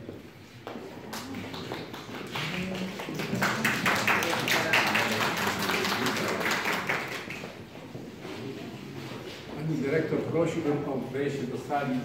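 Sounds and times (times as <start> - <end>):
people clapping: 0.7 - 7.9.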